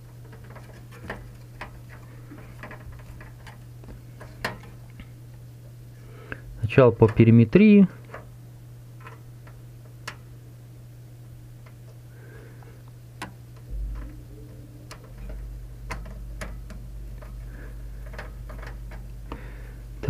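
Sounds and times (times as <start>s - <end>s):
steady low hum: 0.0s - 20.0s
low handling rumble: 13.5s - 20.0s.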